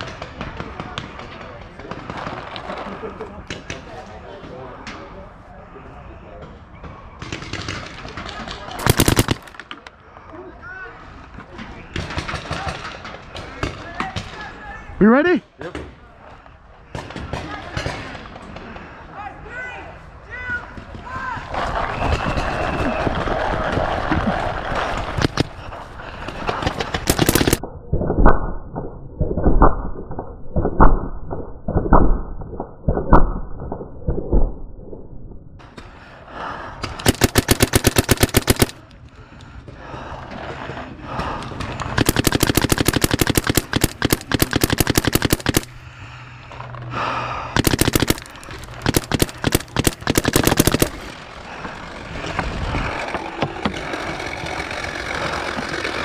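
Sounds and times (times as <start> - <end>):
paintball marker firing: 8.7 - 9.7, 25.2 - 25.6, 26.5 - 27.6, 37.0 - 38.8, 41.9 - 45.8, 47.6 - 51.1.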